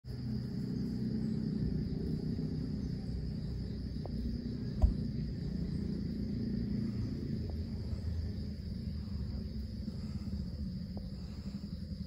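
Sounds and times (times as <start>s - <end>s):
high-pitched insect drone: 0.0s - 12.0s
low rumble: 0.1s - 12.0s.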